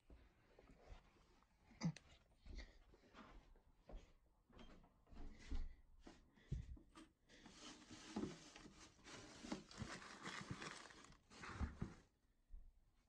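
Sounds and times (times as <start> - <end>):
plastic bin liner rustling: 7.4 - 12.1.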